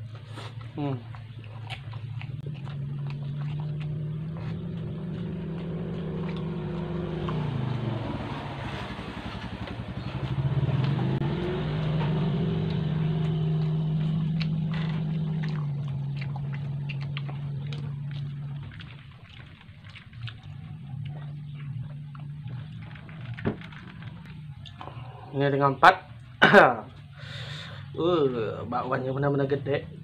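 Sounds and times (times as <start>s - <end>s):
chewing clicks: 0.0s - 7.8s, 9.6s - 25.0s
motor engine humming: 0.0s - 30.0s.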